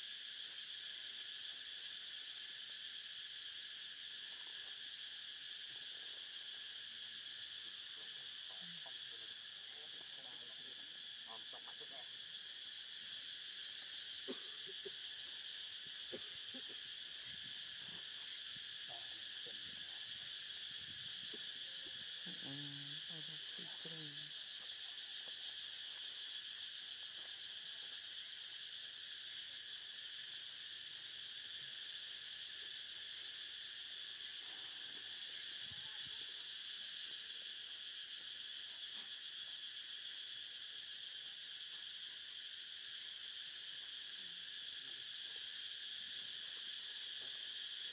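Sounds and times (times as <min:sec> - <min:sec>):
insect chorus buzzing: 0:00.0 - 0:47.9
faint low voice: 0:22.2 - 0:24.2.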